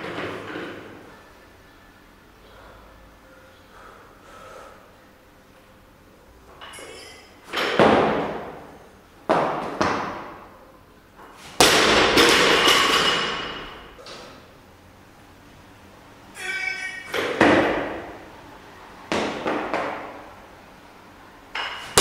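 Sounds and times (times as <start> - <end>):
metal bar and plates ringing: 6.6 - 7.4, 16.4 - 17.5
barbell plates clanking and thudding: 11.6 - 14.3.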